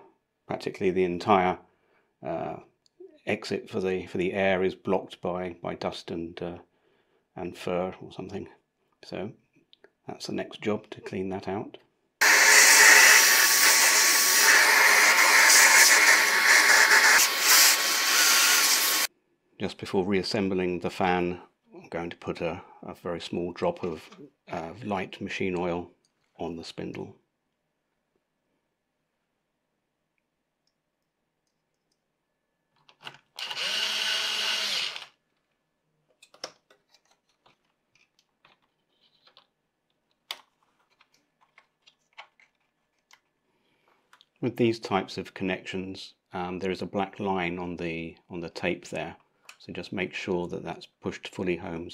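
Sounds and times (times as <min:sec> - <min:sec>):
vacuum cleaner running: 0:12.2 - 0:19.1
clicks and knocks of parts handled: 0:35.3 - 0:44.4.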